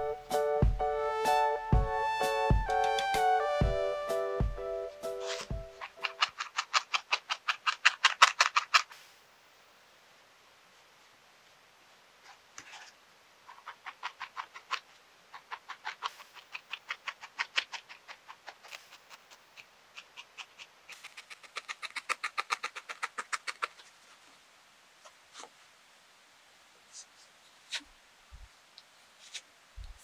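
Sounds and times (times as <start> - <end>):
felting needle stabbing foam: 5.2 - 9.1, 13.5 - 23.8.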